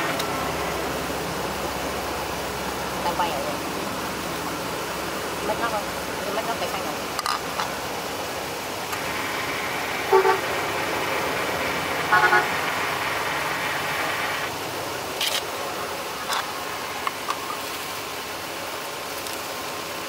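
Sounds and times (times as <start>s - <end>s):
road noise hiss: 0.0s - 20.0s
vehicle horn toots: 10.1s - 10.5s, 12.1s - 12.7s.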